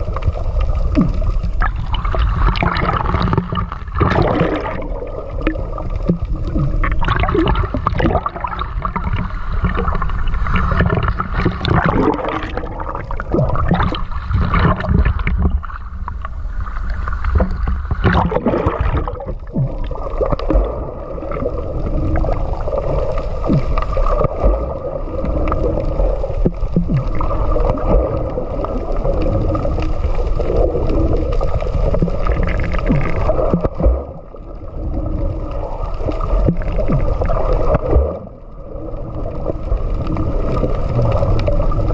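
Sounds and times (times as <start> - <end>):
underwater drone: 0.0 - 41.9
water sloshing and bubbling: 0.0 - 41.9
small knocks underwater: 0.2 - 21.5, 23.4 - 25.6, 31.9 - 34.3, 36.1 - 38.3.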